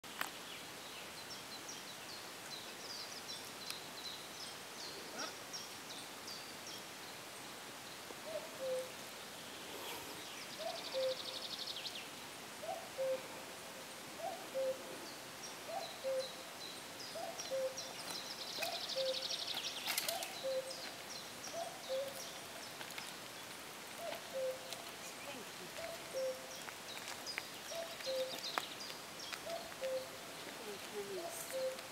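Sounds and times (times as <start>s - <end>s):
songbirds chirping: 0.0s - 31.9s
cuckoo calling: 8.2s - 9.0s, 10.6s - 11.6s, 12.6s - 13.3s, 14.2s - 15.0s, 15.6s - 16.4s, 17.1s - 22.4s, 24.0s - 26.6s, 27.7s - 28.7s, 29.3s - 31.9s.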